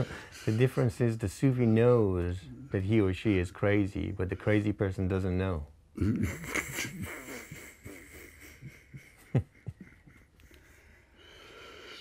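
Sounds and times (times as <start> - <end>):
person chuckling: 6.0 - 11.1.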